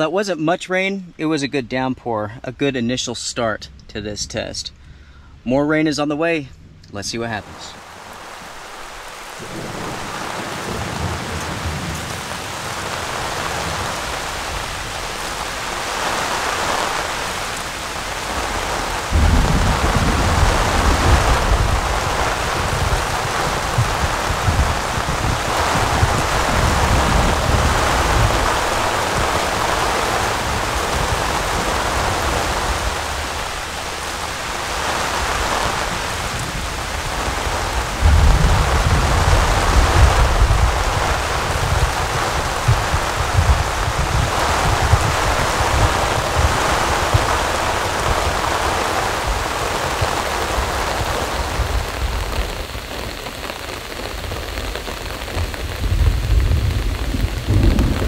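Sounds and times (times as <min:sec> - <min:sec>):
heavy rain: 0:07.0 - 0:58.0.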